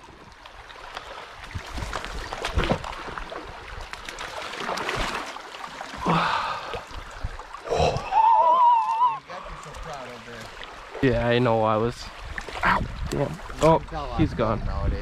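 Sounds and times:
running water: 0.0s - 15.0s
fish splashing in water: 0.4s - 11.0s.

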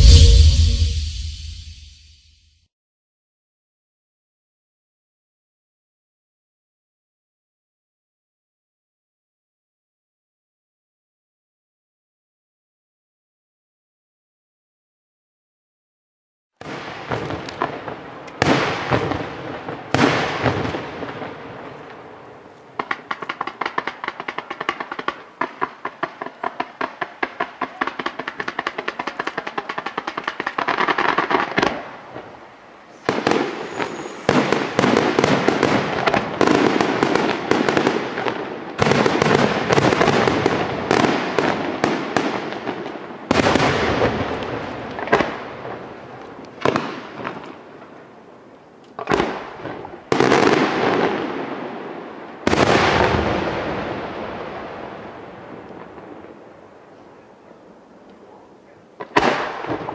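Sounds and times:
fireworks crackling: 0.0s - 1.9s, 16.6s - 32.4s, 33.0s - 47.9s
firework shell bursts echoing: 0.0s - 2.0s, 33.4s - 35.0s.

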